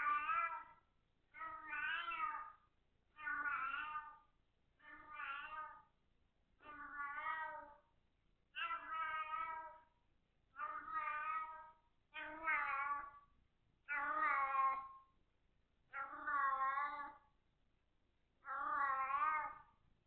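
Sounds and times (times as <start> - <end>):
cat meowing: 0.0 - 0.8, 1.4 - 2.6, 3.2 - 4.2, 4.8 - 5.9, 6.6 - 7.9, 8.6 - 9.9, 10.6 - 13.2, 13.9 - 15.0, 15.9 - 17.2, 18.4 - 19.7.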